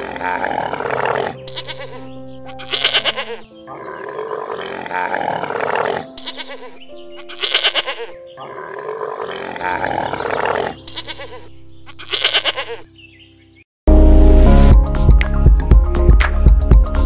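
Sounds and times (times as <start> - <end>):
bleating calls: 0.0 - 12.9
background music: 0.0 - 13.2, 13.9 - 17.0
loud electronic music: 14.5 - 17.0.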